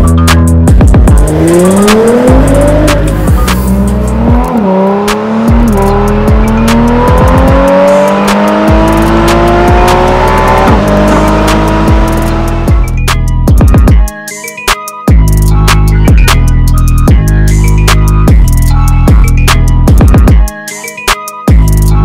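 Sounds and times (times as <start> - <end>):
music with steady beat: 0.0 - 22.0
car engine accelerating hard: 0.7 - 13.0.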